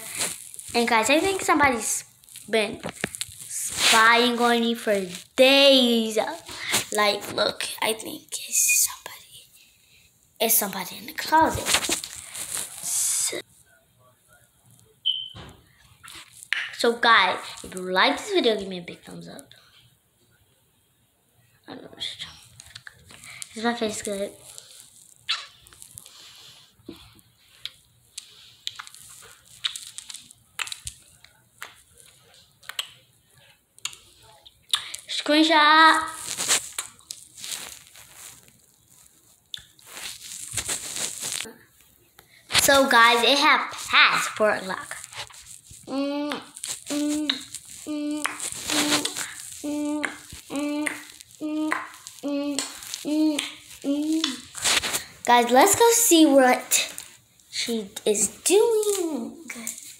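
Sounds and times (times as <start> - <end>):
faint hiss: 0.0 - 18.5, 39.1 - 59.9
child singing short syllables: 45.9 - 54.4.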